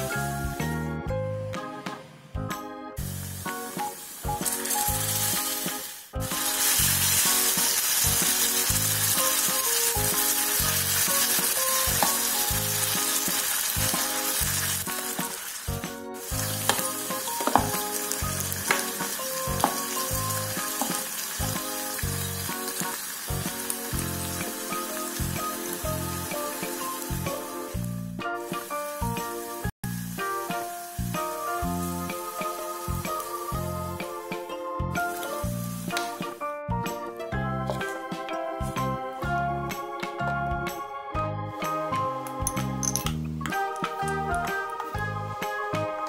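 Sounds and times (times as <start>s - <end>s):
background music with steady beat: 0.0s - 46.0s
food sizzling in oil: 3.0s - 36.4s
wooden spatula clicking and scraping: 16.5s - 20.1s.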